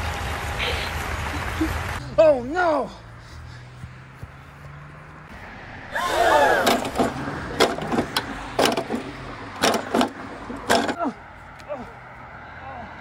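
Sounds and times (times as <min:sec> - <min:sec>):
man yelling: 0:05.9 - 0:06.9.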